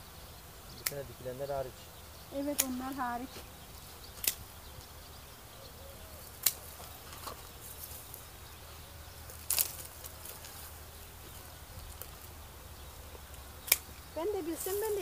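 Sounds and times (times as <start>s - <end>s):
woody snaps of canes breaking: 4.2s - 4.4s, 6.4s - 6.6s, 9.4s - 9.9s, 13.6s - 13.9s.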